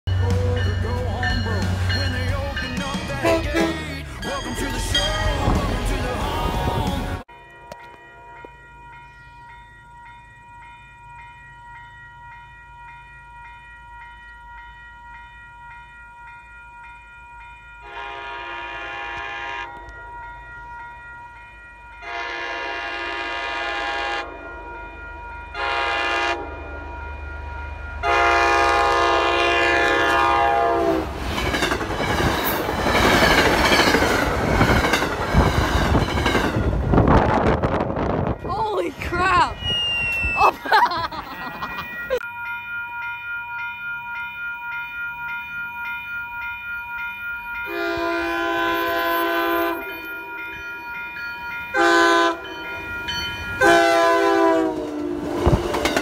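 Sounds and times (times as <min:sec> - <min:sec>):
crossing warning bell ringing: 0:00.1 - 0:56.0
train horn: 0:03.2 - 0:04.0, 0:17.8 - 0:20.0, 0:22.0 - 0:24.6, 0:25.5 - 0:26.7, 0:28.0 - 0:31.2, 0:47.7 - 0:50.2, 0:51.7 - 0:52.6, 0:53.6 - 0:56.0
train wheels on rails: 0:26.7 - 0:40.4, 0:41.0 - 0:56.0.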